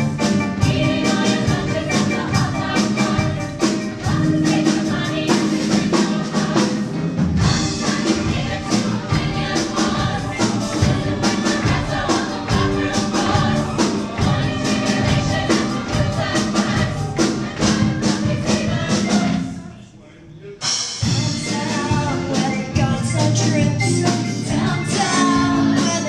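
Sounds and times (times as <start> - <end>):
band accompaniment with beat: 0.0 - 19.6, 20.5 - 26.0
ensemble singing: 0.6 - 20.2.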